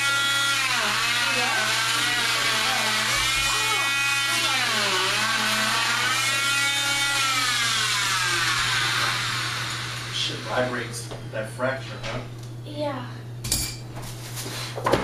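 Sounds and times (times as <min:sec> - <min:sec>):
cast saw whining: 0:00.0 - 0:11.0.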